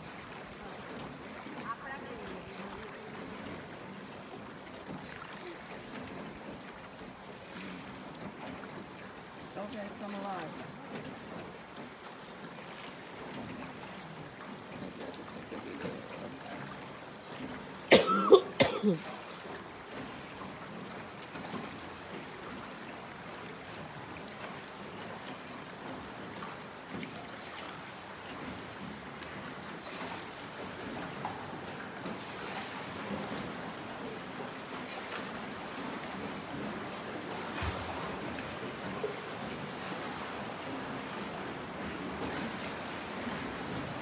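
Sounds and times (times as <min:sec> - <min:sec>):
water around boat: 0:00.0 - 0:44.0
person coughing: 0:17.9 - 0:19.1.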